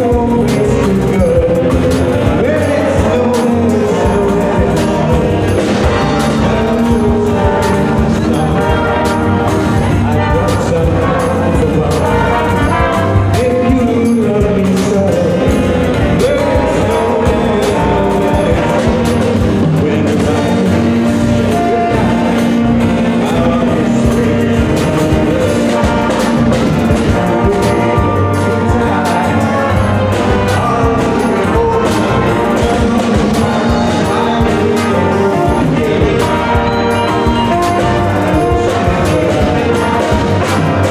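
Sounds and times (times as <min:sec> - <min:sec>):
big band horns playing: 0:00.0 - 0:40.9
drums keeping a beat: 0:00.0 - 0:40.9.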